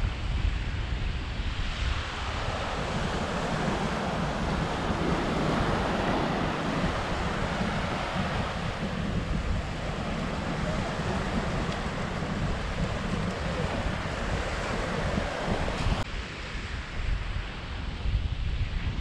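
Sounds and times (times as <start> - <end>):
wind buffeting microphone: 0.0 - 19.0
small waves washing up a beach: 0.4 - 18.2.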